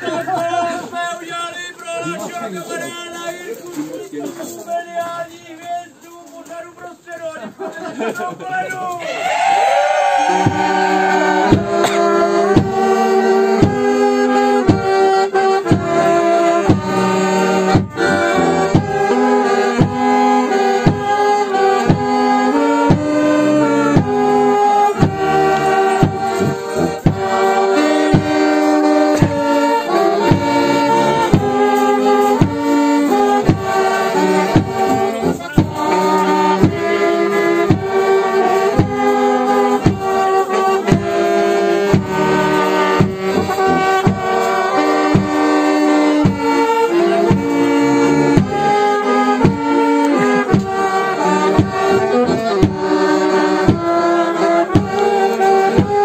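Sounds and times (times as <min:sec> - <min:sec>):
brass band playing folk tune: 0:00.0 - 0:08.2, 0:09.1 - 0:56.0
bass drum beat: 0:10.2 - 0:14.0, 0:15.6 - 0:20.2, 0:22.9 - 0:48.8, 0:49.4 - 0:53.0, 0:53.6 - 0:54.0.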